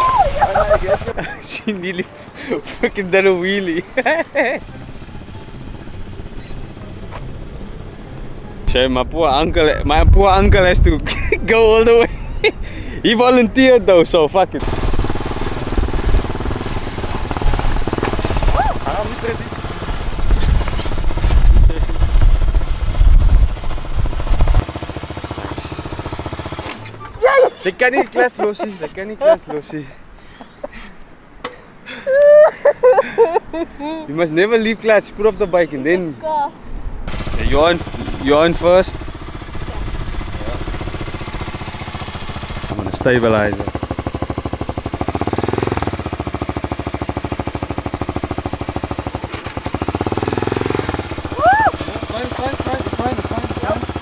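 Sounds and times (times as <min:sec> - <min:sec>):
motorcycle engine idling: 0:04.4 - 0:08.6, 0:14.6 - 0:27.1, 0:37.1 - 0:54.0
wind rumble on microphone: 0:09.3 - 0:11.8, 0:20.1 - 0:24.6.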